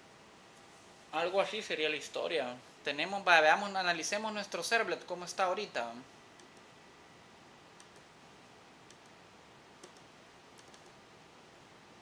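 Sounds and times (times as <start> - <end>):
low room hiss: 0.0 - 12.0
computer mouse clicks: 6.4 - 6.7, 7.8 - 8.1, 8.8 - 9.2, 9.8 - 11.0.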